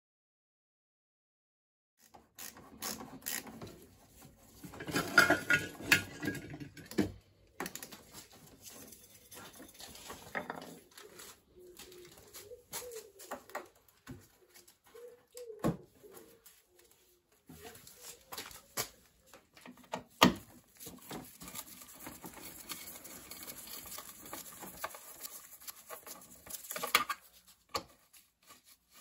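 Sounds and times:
pigeon cooing: 9.6s - 19.1s
clicks and knocks of parts: 18.8s - 28.0s.

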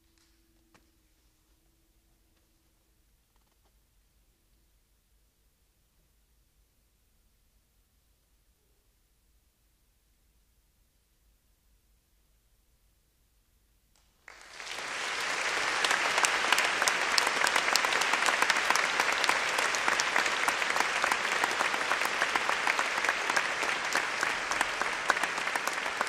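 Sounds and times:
audience applause: 14.3s - 26.0s.

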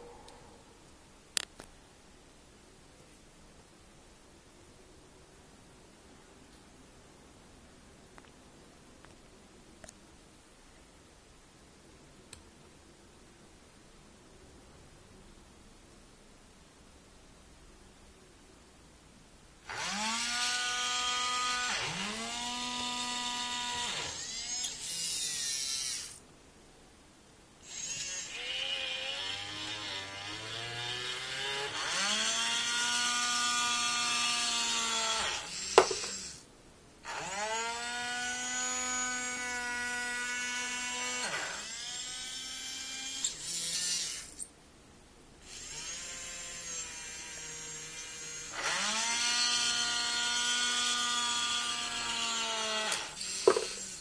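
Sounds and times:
small motors whining: 19.7s - 26.2s, 27.6s - 36.4s, 37.1s - 44.5s, 45.4s - 54.0s.

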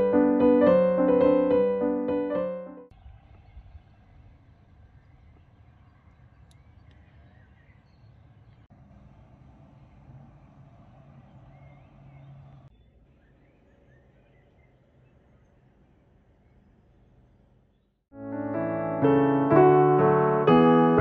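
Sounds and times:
solo piano music: 0.0s - 2.9s, 18.2s - 21.0s
faint outdoor background noise: 2.9s - 18.0s.

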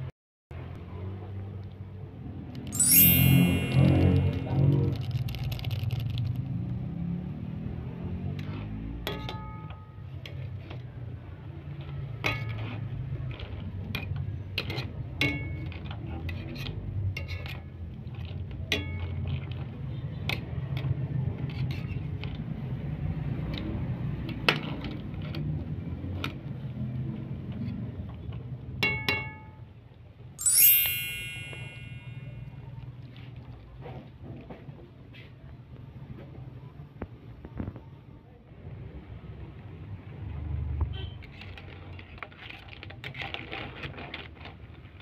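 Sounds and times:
bright ringing tone: 2.8s - 4.8s, 30.4s - 32.3s.

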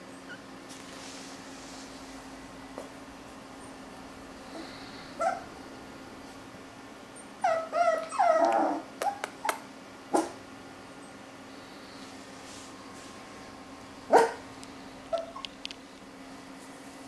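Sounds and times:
puppies yipping and whining: 7.2s - 9.6s, 15.1s - 15.5s.

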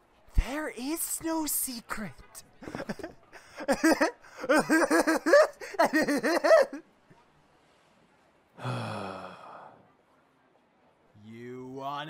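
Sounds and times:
character voice laughing: 3.7s - 6.8s
low sigh: 8.6s - 9.8s.

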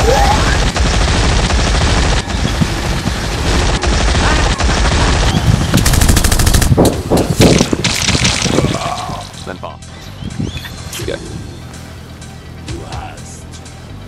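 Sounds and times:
rapid gunfire: 0.0s - 8.7s.

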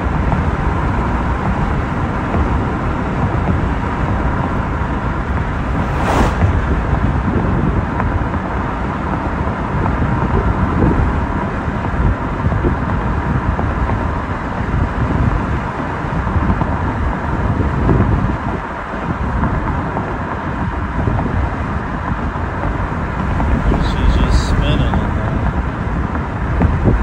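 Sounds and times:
car road and wind noise: 0.0s - 27.0s
brief rushing whoosh: 5.2s - 7.4s.

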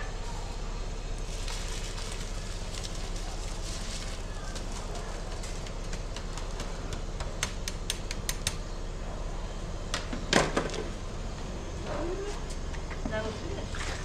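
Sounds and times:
low background rush: 0.0s - 13.7s.

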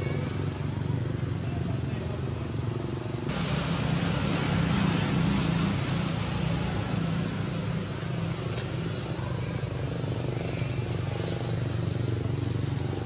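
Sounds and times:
low engine hum: 0.0s - 13.0s
loud hiss: 3.3s - 7.8s.

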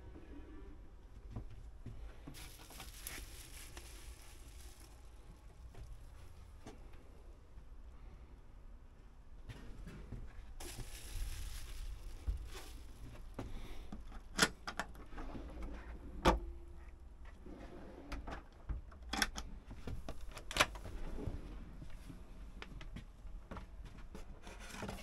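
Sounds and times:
plastic sheet rustling: 2.3s - 6.7s, 10.6s - 14.0s.

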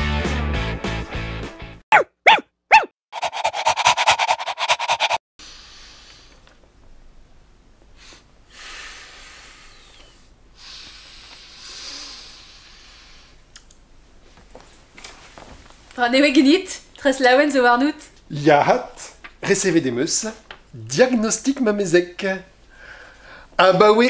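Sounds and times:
animal panting: 2.3s - 5.2s
quiet breathing: 8.0s - 13.5s, 22.7s - 23.6s.

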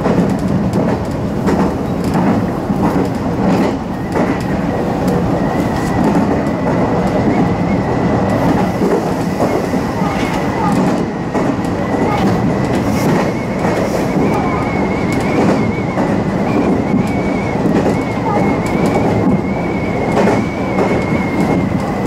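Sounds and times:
train running noise: 0.0s - 22.0s
wheels clacking over rail joints: 0.0s - 22.0s.

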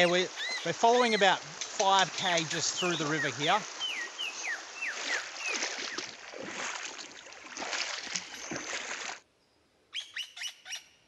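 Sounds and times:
bird chirping: 0.0s - 1.4s, 2.2s - 6.1s, 8.1s - 11.0s
water sloshing from wading feet: 1.4s - 9.2s.

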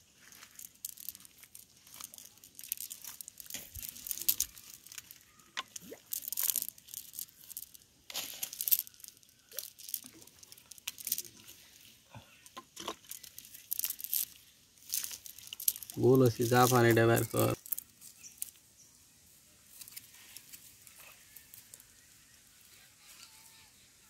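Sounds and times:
net rustling against grass: 0.0s - 12.1s.

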